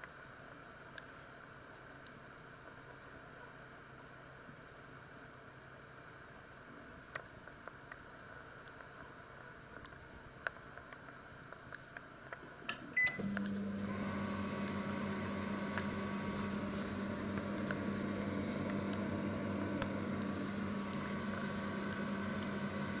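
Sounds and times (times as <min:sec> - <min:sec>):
microwave humming with fan noise: 0:12.7 - 0:23.0
microwave beep: 0:12.9 - 0:16.3.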